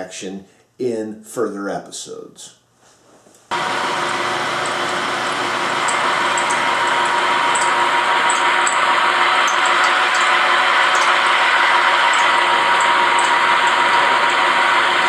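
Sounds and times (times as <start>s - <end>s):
milling machine cutting metal: 3.5s - 15.0s.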